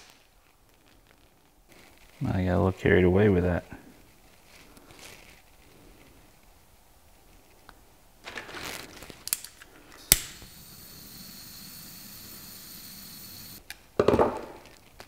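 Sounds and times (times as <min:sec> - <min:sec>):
torch burning hiss: 0:10.1 - 0:13.6
torch igniter click: 0:10.1 - 0:13.6.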